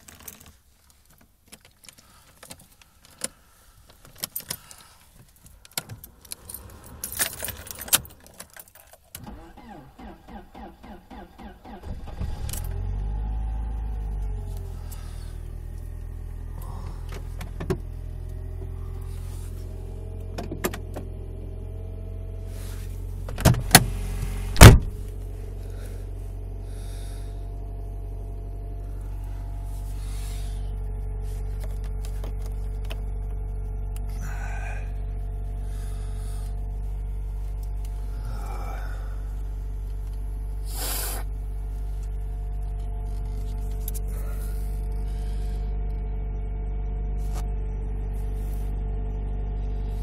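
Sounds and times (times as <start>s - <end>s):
car engine idling: 0.0s - 50.0s
sharp clunks: 24.6s - 25.0s.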